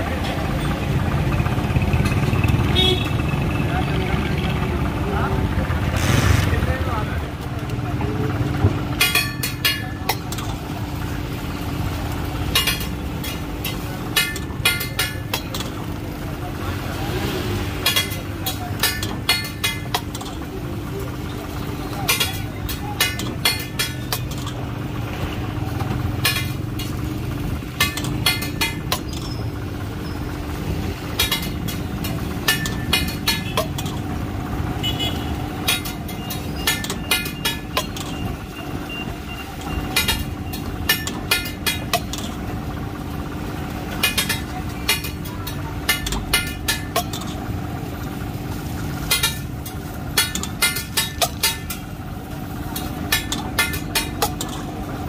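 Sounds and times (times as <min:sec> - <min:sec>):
street traffic hum: 0:00.0 - 0:55.0
metal spatula clanging on griddle: 0:09.0 - 0:10.6, 0:12.4 - 0:16.0, 0:17.8 - 0:20.4, 0:22.0 - 0:24.6, 0:26.1 - 0:27.0, 0:27.7 - 0:29.5, 0:31.1 - 0:34.1, 0:35.6 - 0:38.2, 0:39.6 - 0:42.5, 0:43.9 - 0:54.9.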